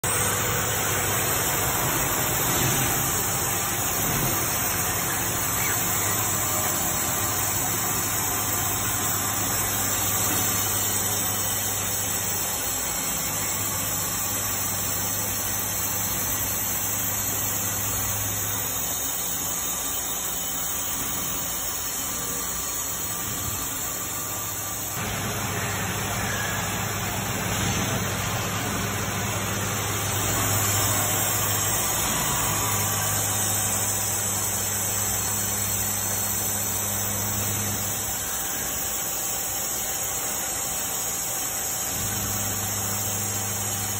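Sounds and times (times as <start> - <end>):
machine spindle milling metal: 0.0 - 43.9.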